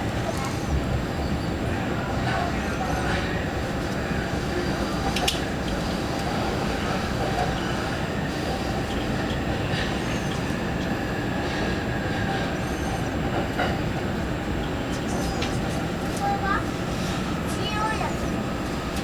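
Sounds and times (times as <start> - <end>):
train wheels rumbling on rail: 0.0 - 19.0
faint high squeals: 9.8 - 10.5, 12.5 - 13.1.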